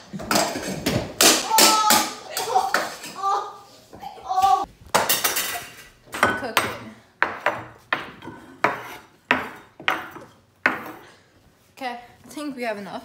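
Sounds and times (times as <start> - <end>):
metal utensil banging on countertop: 4.9 - 11.0.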